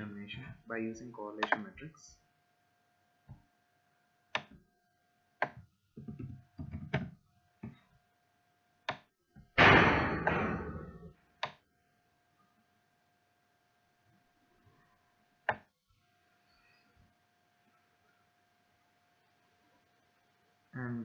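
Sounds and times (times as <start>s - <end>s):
faint electrical whine: 0.0s - 21.0s
keyboard and mouse clicks: 1.4s - 1.7s, 4.4s - 4.6s, 5.4s - 7.8s, 8.9s - 9.1s
loud thump: 9.6s - 10.9s.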